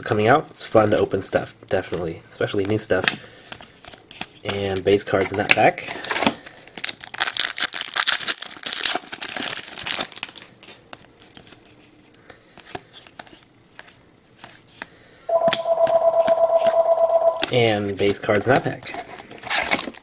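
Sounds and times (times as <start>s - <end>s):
foil wrapper tearing and crinkling: 6.0s - 11.6s
phone ringing: 15.3s - 17.6s.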